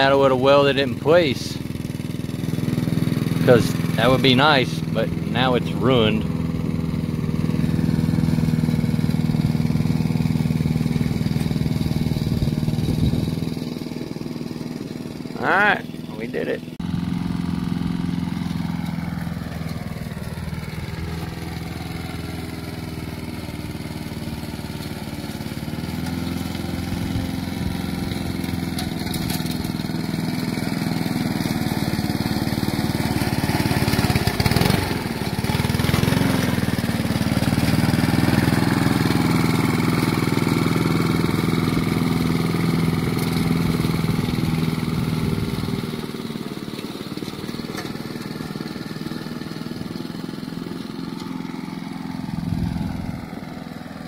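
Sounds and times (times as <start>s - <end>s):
lawn mower engine running: 0.0s - 54.0s.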